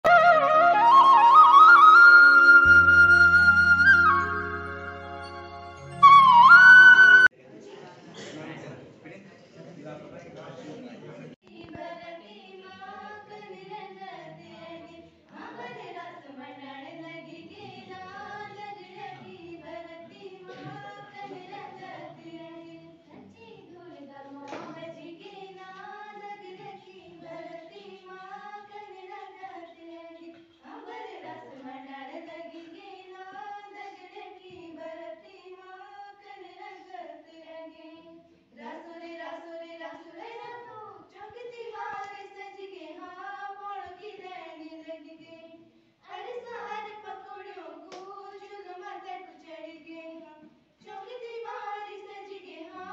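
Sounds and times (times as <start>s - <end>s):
girls singing a folk song: 11.4s - 52.9s.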